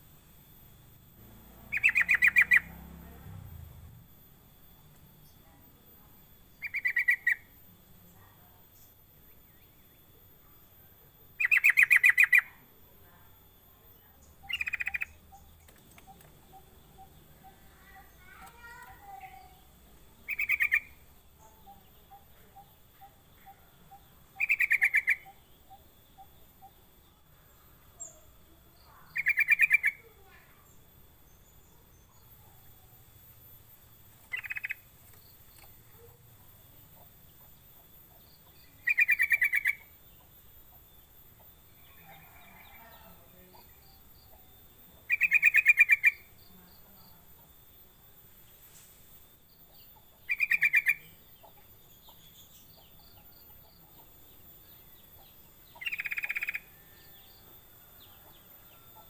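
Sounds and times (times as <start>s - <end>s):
bulbul bubbling calls: 50.1s - 51.2s.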